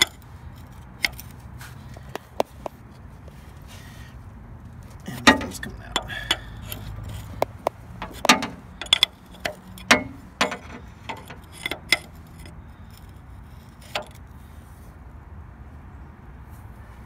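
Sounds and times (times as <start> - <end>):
wrench clinking on metal stud: 0.0 - 0.2, 5.1 - 12.6.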